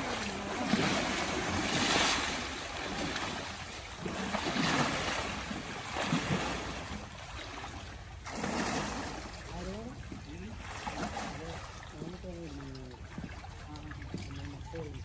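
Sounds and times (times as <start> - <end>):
water splashing around elephant: 0.0 - 15.0.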